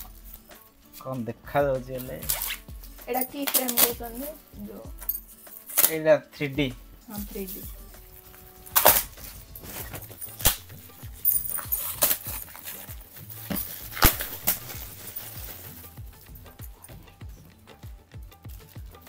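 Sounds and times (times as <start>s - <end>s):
gift wrap crinkling and tearing: 2.0s - 2.6s, 8.2s - 16.3s.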